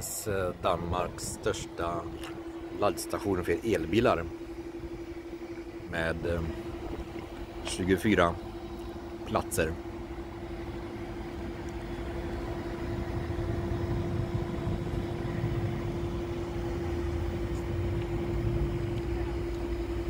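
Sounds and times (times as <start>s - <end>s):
low rumble: 0.0s - 7.7s, 9.9s - 20.0s
electrical hum: 0.0s - 20.0s.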